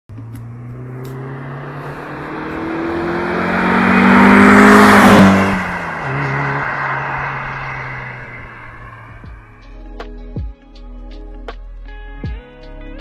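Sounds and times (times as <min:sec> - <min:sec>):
car engine passing by: 0:00.1 - 0:09.9.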